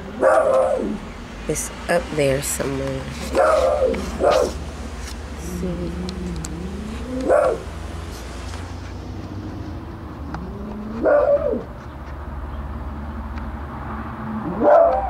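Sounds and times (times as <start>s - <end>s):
dog howling and yelping: 3.3s - 4.6s, 6.1s - 7.7s, 10.3s - 11.7s, 14.4s - 15.0s.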